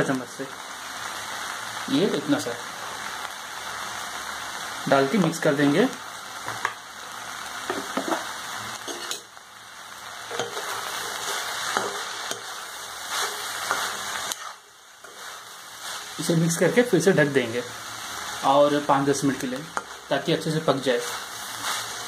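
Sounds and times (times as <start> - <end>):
soft sizzle: 0.0 - 22.0
spatula scraping a pan: 8.8 - 9.3, 10.3 - 16.3, 20.9 - 22.0.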